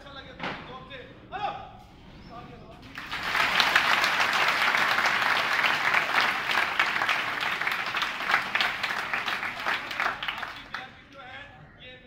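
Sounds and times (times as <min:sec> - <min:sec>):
audience applauding: 0:02.9 - 0:10.9.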